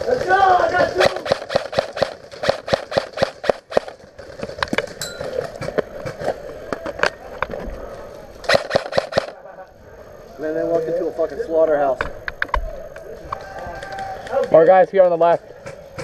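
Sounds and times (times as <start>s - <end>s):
airsoft gunfire: 0.8s - 4.0s, 8.5s - 9.4s.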